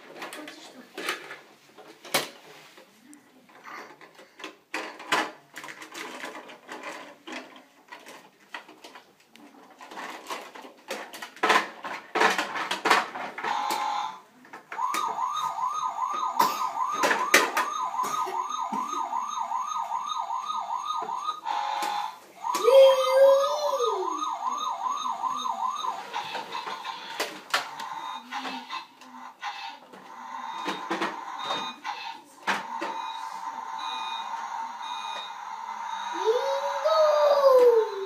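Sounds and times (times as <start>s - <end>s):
plastic toy trucks clattering: 0.0s - 2.4s, 3.5s - 15.2s, 16.8s - 18.9s
toy truck electronic siren wailing: 14.8s - 28.8s, 29.5s - 38.0s.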